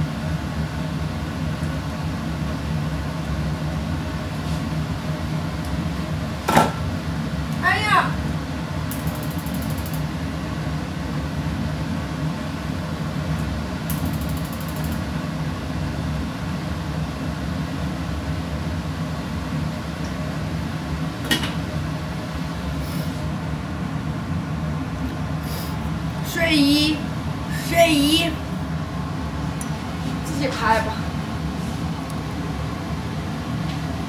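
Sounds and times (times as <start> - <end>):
range hood fan humming: 0.0 - 34.0
sharp click: 8.9 - 10.0, 13.9 - 15.0
gas igniter rapid ticking: 8.9 - 10.1, 13.9 - 15.0.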